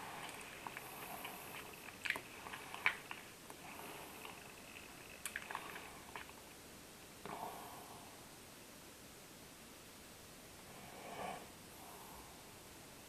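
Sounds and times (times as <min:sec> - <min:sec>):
teeth grinding: 0:00.0 - 0:06.3.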